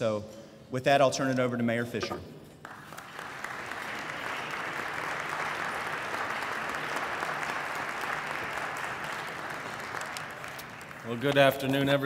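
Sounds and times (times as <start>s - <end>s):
audience applauding: 2.6s - 12.0s.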